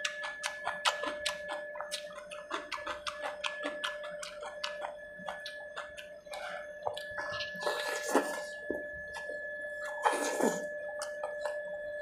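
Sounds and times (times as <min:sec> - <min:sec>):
mouth smacking and chewing: 0:00.0 - 0:08.6
faint steady whine: 0:00.0 - 0:12.0.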